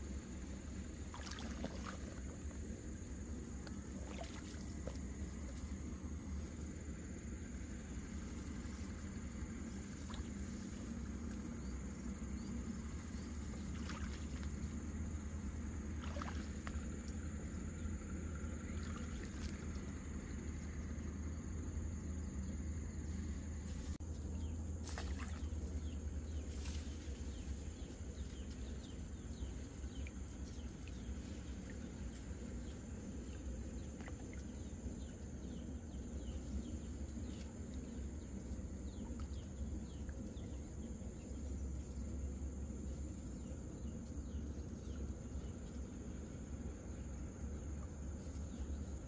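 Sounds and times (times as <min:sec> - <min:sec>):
low rumble: 0:00.0 - 0:24.8
high insect drone: 0:00.0 - 0:49.0.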